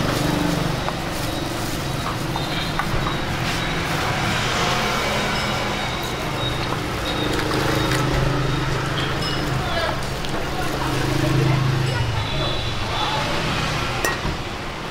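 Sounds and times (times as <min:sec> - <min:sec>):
ladle clinking against pot: 0:14.0 - 0:14.4.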